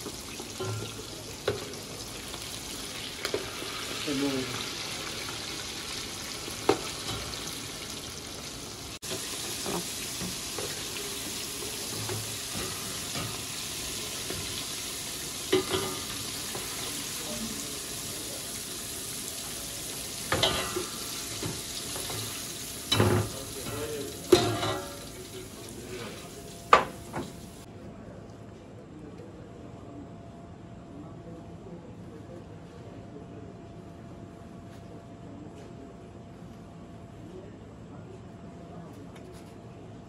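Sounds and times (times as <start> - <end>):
food sizzling in hot oil: 0.0 - 27.7
metal skimmer clinking on pot: 0.5 - 1.7, 15.5 - 16.1, 22.9 - 25.0.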